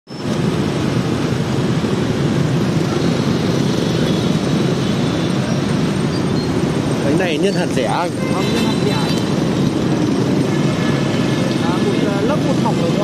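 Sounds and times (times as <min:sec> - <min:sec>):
motorbike engines passing: 0:00.1 - 0:13.0.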